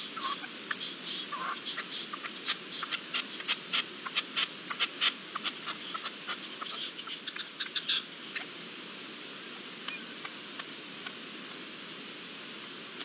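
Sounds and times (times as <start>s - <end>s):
small birds chirping: 0.0s - 8.6s, 9.8s - 11.6s
steady hiss: 0.0s - 13.0s.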